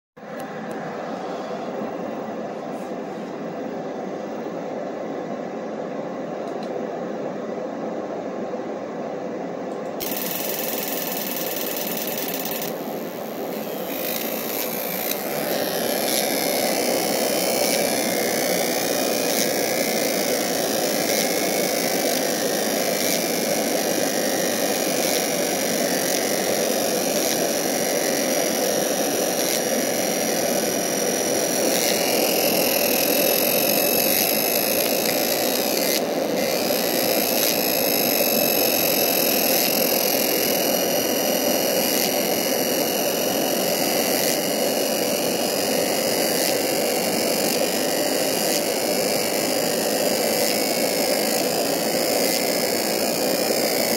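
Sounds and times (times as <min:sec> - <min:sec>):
fume extractor rushing air: 0:00.2 - 0:41.4
faint high whine: 0:00.2 - 0:53.9.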